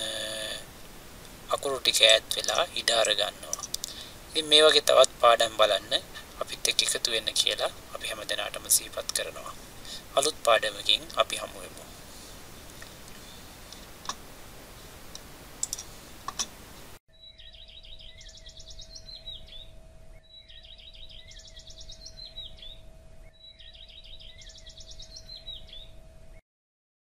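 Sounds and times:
recorded songbird trills: 0:00.0 - 0:14.2, 0:16.7 - 0:26.0
faint steady tone: 0:00.0 - 0:16.9
room hiss: 0:00.0 - 0:17.0
mouse clicks: 0:15.2 - 0:16.5.

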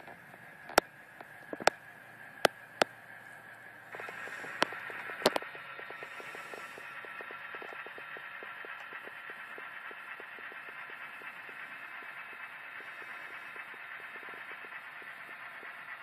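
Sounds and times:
model train cars rolling: 0:00.0 - 0:16.0
wheels clicking over rail joints: 0:00.0 - 0:16.0
sharp clacks: 0:03.9 - 0:16.0.

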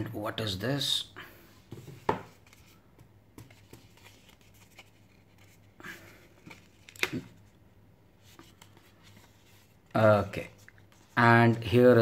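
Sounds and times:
cardboard clicking and rubbing: 0:03.4 - 0:05.6
soft rustle: 0:08.2 - 0:11.5.

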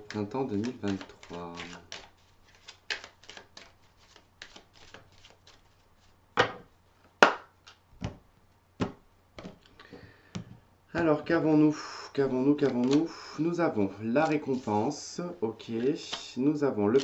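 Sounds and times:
cards shuffling: 0:00.0 - 0:06.2, 0:12.5 - 0:17.0.

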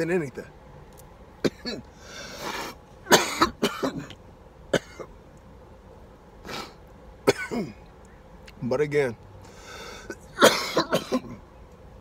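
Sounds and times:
man coughing: 0:01.4 - 0:01.9, 0:03.1 - 0:04.1, 0:04.7 - 0:05.1, 0:07.2 - 0:07.8, 0:10.4 - 0:11.4
breath out: 0:01.9 - 0:02.8, 0:09.4 - 0:10.2.

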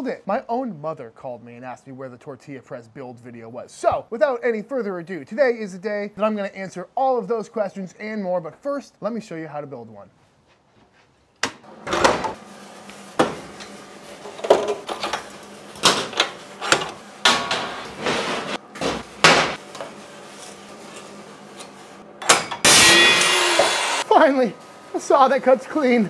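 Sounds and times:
chop saw motor running: 0:22.7 - 0:24.0.

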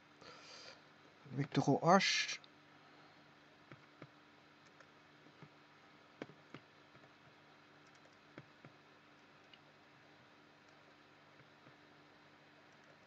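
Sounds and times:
faint steady hum: 0:00.0 - 0:13.0
computer mouse clicks: 0:03.7 - 0:05.5, 0:07.8 - 0:09.6, 0:12.6 - 0:13.0.

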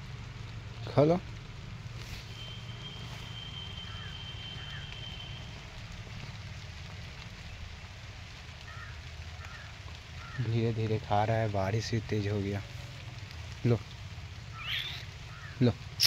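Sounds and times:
light rain falling: 0:00.0 - 0:16.0.

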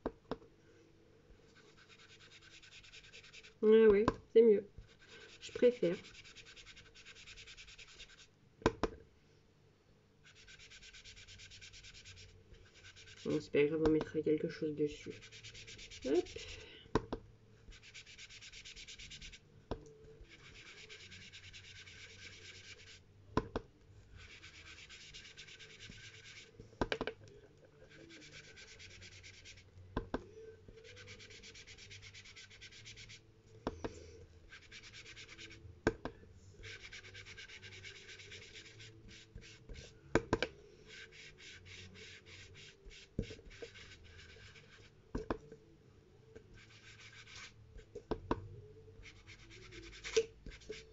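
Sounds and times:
brush scrubbing over paper: 0:01.5 - 0:03.6, 0:04.8 - 0:08.3, 0:10.2 - 0:13.5, 0:14.8 - 0:16.6, 0:17.7 - 0:19.4, 0:20.2 - 0:23.0, 0:24.2 - 0:26.5, 0:27.8 - 0:29.7, 0:30.8 - 0:33.2, 0:34.5 - 0:35.6, 0:36.6 - 0:40.0, 0:40.8 - 0:44.9, 0:46.6 - 0:47.6, 0:49.0 - 0:50.9.

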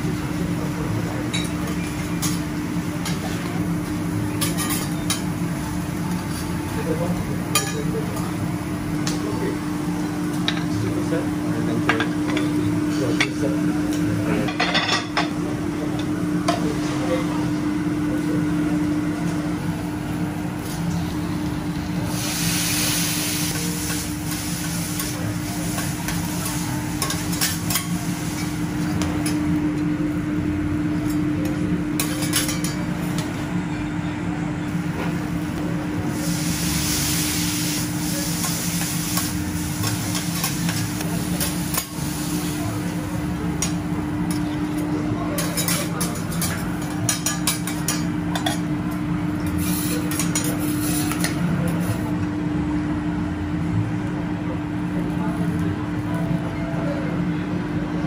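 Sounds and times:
food sizzling: 0:20.6 - 0:29.6, 0:35.3 - 0:44.3.

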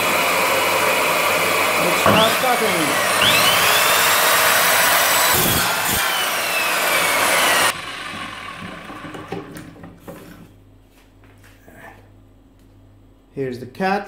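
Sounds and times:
mitre saw cutting wood: 0:00.0 - 0:09.1.

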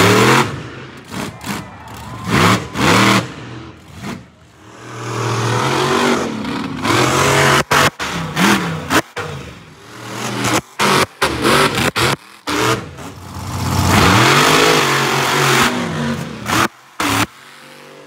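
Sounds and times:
monster truck engine revving: 0:00.0 - 0:18.0.

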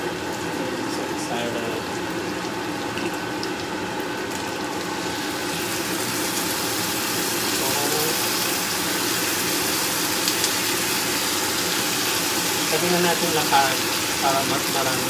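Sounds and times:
meat sizzling in a frying pan: 0:00.2 - 0:15.0.

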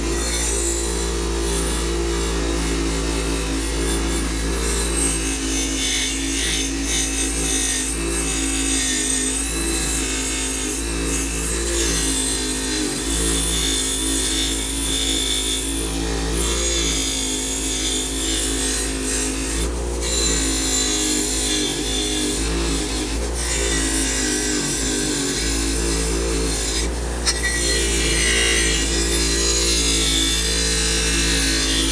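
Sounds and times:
electric motor humming: 0:00.0 - 0:31.9.

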